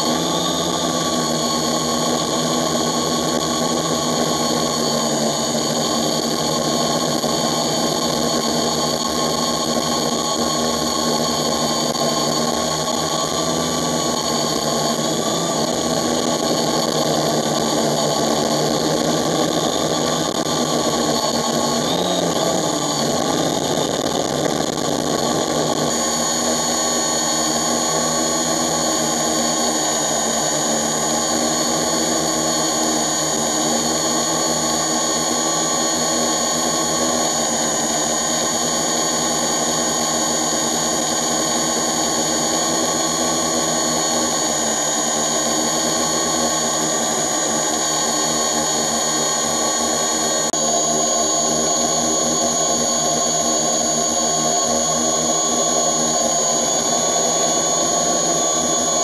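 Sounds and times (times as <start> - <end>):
drone propellers whirring: 0.0 - 59.0.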